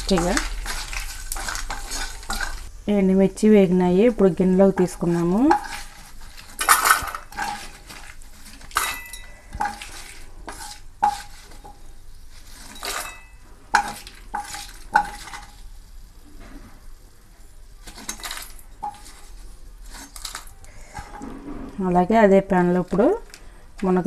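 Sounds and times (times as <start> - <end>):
spatula scraping and knocking pan: 0.0 - 2.7, 4.0 - 15.6
oil sizzling faintly: 0.0 - 24.0
steel bowl ringing: 8.8 - 9.7.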